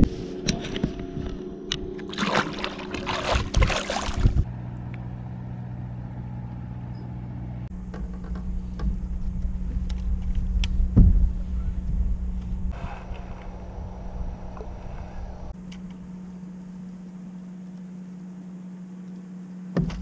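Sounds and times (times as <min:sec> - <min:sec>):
fish splashing in water: 0:02.1 - 0:04.4
electric trolling motor hum: 0:04.2 - 0:20.0.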